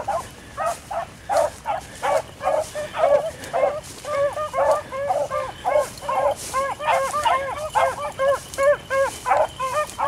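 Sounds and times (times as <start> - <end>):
beagles baying: 0.0 - 10.0.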